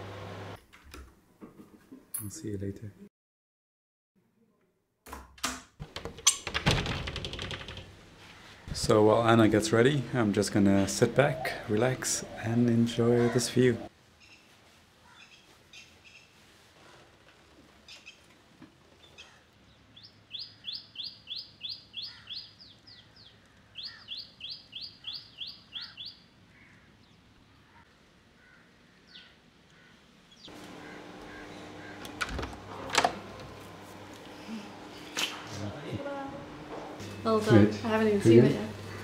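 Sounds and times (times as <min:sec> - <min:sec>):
door handle and latch clicking: 0:05.1 - 0:07.9, 0:32.0 - 0:33.8
steady hum: 0:30.5 - 0:39.0.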